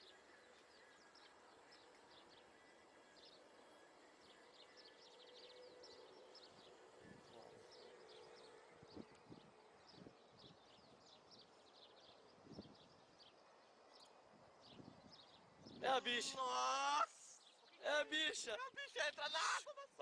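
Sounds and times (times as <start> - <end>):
small birds chirping: 0.0 - 19.7.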